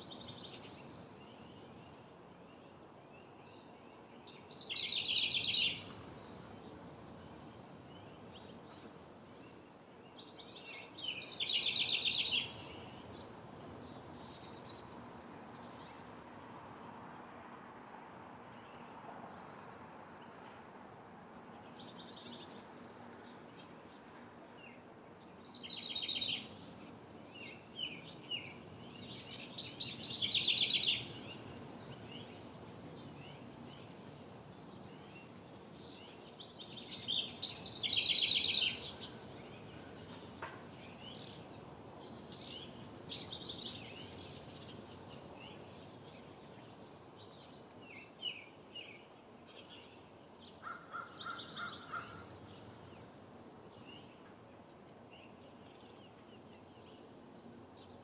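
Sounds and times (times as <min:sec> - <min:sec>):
wren trilling song: 0:03.5 - 0:06.3, 0:10.2 - 0:13.2, 0:27.3 - 0:34.0, 0:34.6 - 0:46.6, 0:50.6 - 0:53.1.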